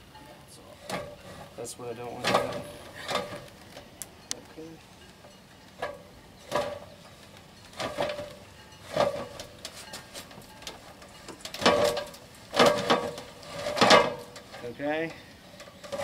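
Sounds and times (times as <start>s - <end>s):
battery scraping down metal ladder: 0.8s - 3.5s, 7.7s - 14.8s, 15.6s - 16.0s.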